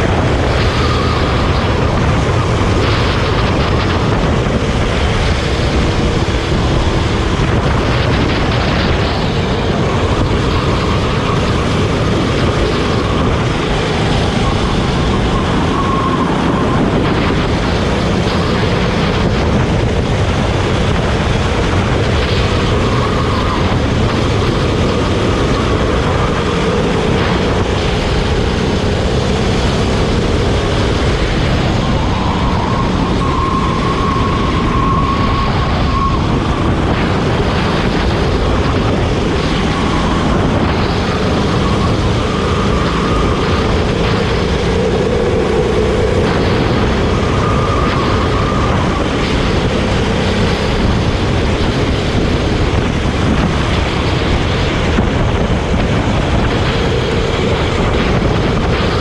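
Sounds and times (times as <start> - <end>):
go-kart engine running: 0.0 - 59.0
wind and road noise: 0.0 - 59.0.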